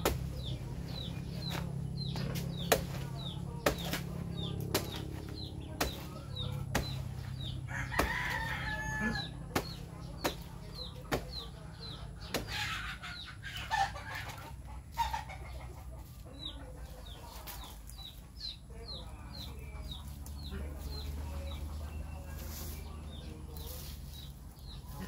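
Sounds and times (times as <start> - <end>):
knife chopping plant stem: 0.0 - 12.8
chickens clucking: 0.0 - 25.0.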